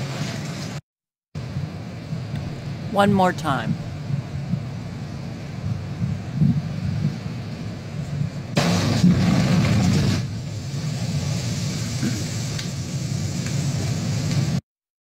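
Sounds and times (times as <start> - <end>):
low wind rumble on microphone: 1.4 - 14.6
lightning crack: 3.8 - 14.6
roar of thrown-up water and spray: 8.6 - 14.6.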